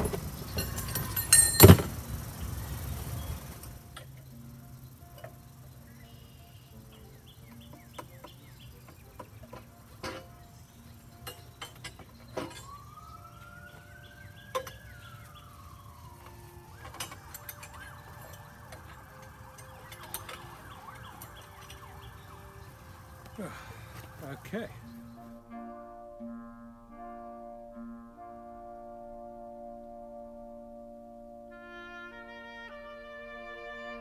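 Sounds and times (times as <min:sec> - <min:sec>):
metal frame clinks and knocks: 0:00.0 - 0:02.1, 0:07.6 - 0:15.1, 0:16.2 - 0:23.3.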